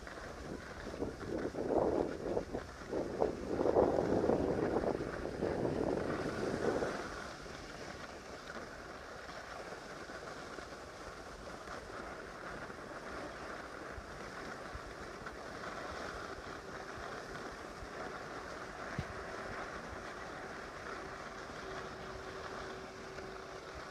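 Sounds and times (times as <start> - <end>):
wind rushing over microphone: 0.0 - 8.3
skis hissing on snow: 0.0 - 23.9.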